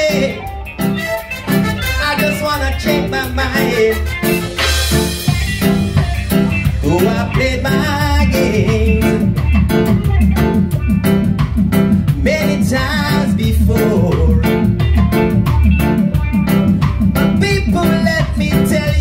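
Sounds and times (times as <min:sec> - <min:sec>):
bass guitar: 0:00.0 - 0:19.0
drum kit: 0:00.0 - 0:19.0
electric guitar: 0:00.0 - 0:19.0
voices singing: 0:06.6 - 0:09.8.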